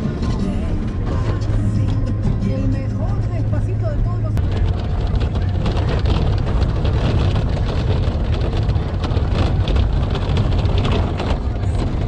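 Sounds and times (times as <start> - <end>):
engine and road rumble: 0.0 - 12.0
body and windows rattling: 4.4 - 12.0.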